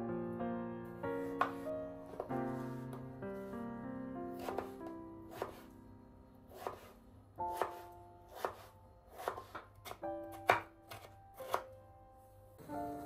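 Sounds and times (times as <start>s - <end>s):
background music: 0.0s - 13.0s
knife cutting on wooden board: 1.3s - 1.6s, 4.4s - 5.7s, 6.5s - 11.7s.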